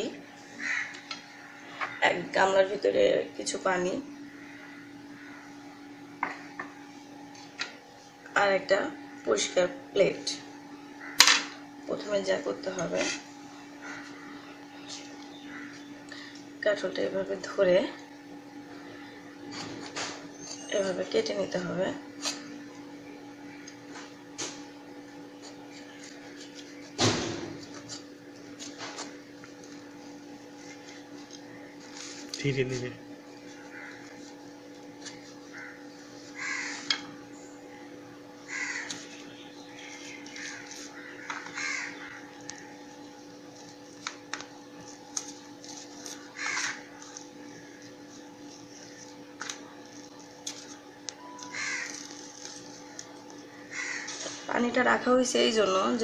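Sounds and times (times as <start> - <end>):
steady low hum: 0.0 - 56.0
crow cawing: 0.5 - 2.2, 4.2 - 5.6, 11.0 - 11.6, 13.7 - 14.6, 15.3 - 16.4, 33.5 - 34.3, 35.5 - 37.1, 38.4 - 42.8, 46.2 - 47.0, 51.4 - 52.4, 53.5 - 54.5
knife scraping fruit rind: 25.3 - 37.1, 38.5 - 54.5.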